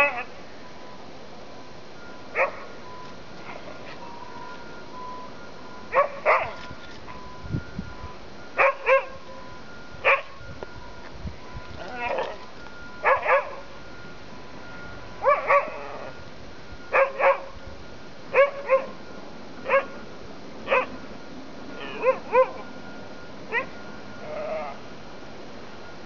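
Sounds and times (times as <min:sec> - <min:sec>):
dogs barking in play: 0:00.0 - 0:00.4, 0:02.3 - 0:02.8, 0:05.9 - 0:07.2, 0:08.6 - 0:09.2, 0:10.0 - 0:10.4, 0:11.8 - 0:13.7, 0:15.2 - 0:16.2, 0:16.9 - 0:17.6, 0:18.3 - 0:19.0, 0:19.6 - 0:20.0, 0:20.6 - 0:21.0, 0:21.7 - 0:22.8, 0:23.5 - 0:24.9.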